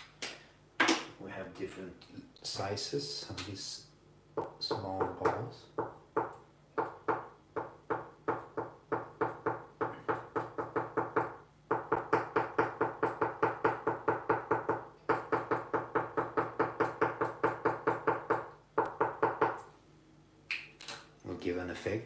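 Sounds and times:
marker tapping on paper: 0:05.2 - 0:19.7.

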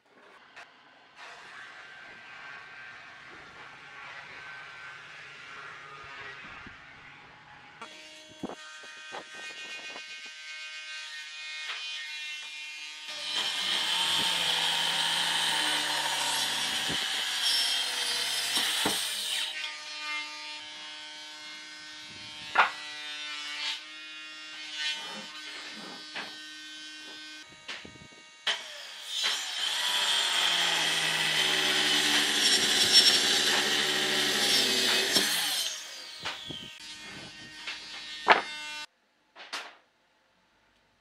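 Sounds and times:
circular saw cutting wood: 0:00.2 - 0:38.9
knocks of wood: 0:22.5 - 0:22.8, 0:37.7 - 0:38.6.

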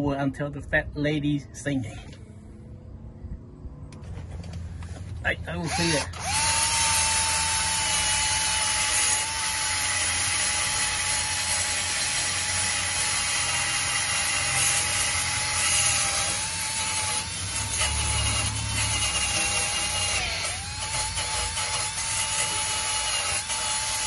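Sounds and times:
cordless drill motor whine: 0:05.6 - 0:24.0
wire brush grinding metal: 0:05.6 - 0:24.0.

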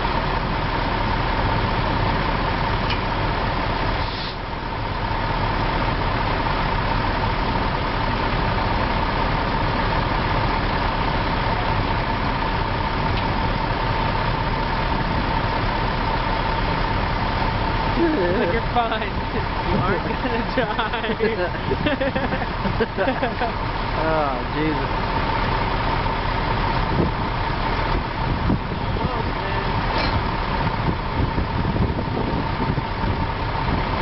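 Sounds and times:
constant whine: 0:00.0 - 0:34.0
diesel engine idling: 0:00.0 - 0:34.0.

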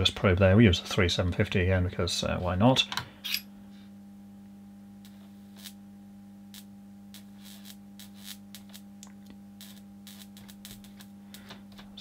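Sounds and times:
small sparks crackling: 0:05.0 - 0:05.8, 0:06.4 - 0:12.0.

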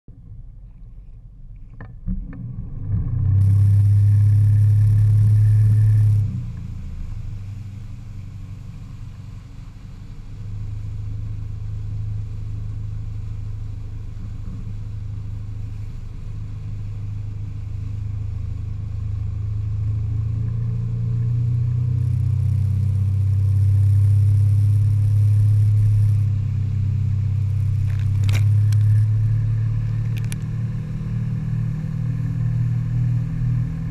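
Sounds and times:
boat engine droning: 0:02.0 - 0:33.9
water spray rushing: 0:20.7 - 0:32.4.

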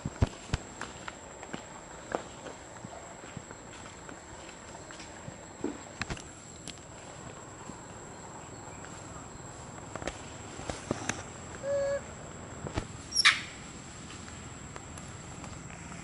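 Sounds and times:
high-pitched insect drone: 0:11.0 - 0:12.2.

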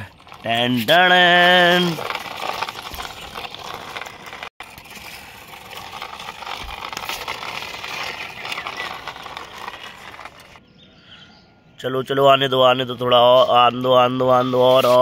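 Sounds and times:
toy truck wheels rattling and scraping: 0:00.0 - 0:10.6, 0:14.2 - 0:15.0.

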